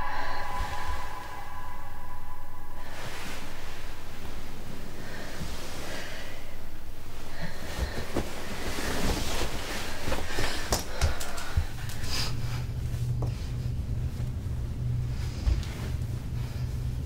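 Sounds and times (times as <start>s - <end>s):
low steady hum: 0.0s - 17.0s
breathing: 4.9s - 13.8s, 15.0s - 17.0s.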